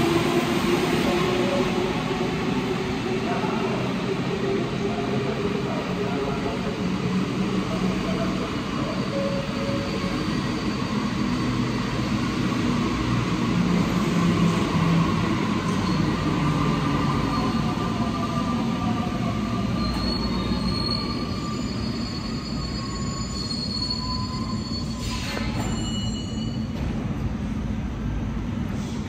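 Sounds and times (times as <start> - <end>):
metro train rumble: 0.0 - 29.0
train brakes squealing: 8.4 - 12.0, 15.4 - 26.9.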